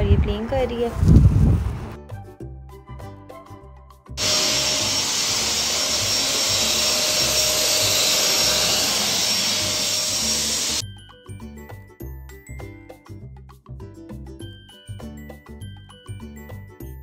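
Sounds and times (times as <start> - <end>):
vacuum cleaner running: 4.2 - 10.8.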